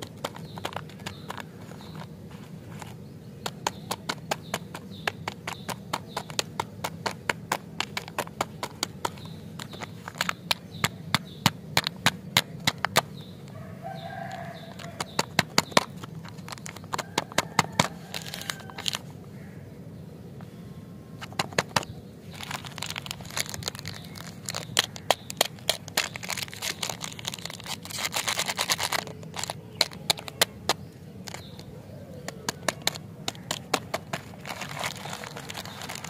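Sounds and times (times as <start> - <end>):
steady low hum: 0.0 - 36.0
plastic wrappers crinkling: 12.5 - 19.1, 21.3 - 31.7, 32.3 - 36.0.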